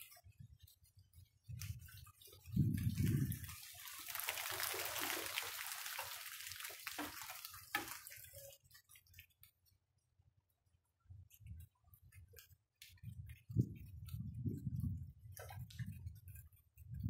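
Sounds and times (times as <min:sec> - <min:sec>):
water drips: 0:01.4 - 0:09.5
rain and splashing water: 0:01.5 - 0:09.3.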